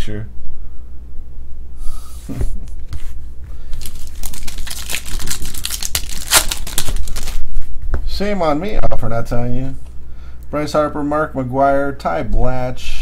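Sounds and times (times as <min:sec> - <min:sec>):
trading cards rustling and snapping: 0:03.7 - 0:07.4.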